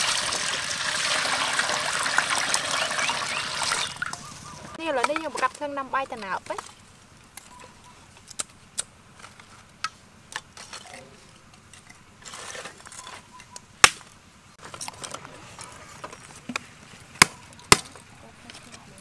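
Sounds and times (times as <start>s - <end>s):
dry sticks cracking: 8.2s - 10.6s.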